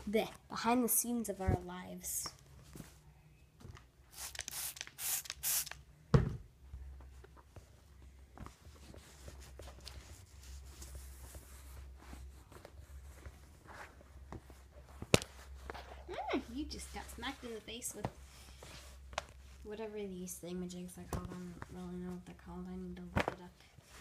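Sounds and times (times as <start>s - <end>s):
thump: 6.1s - 6.4s.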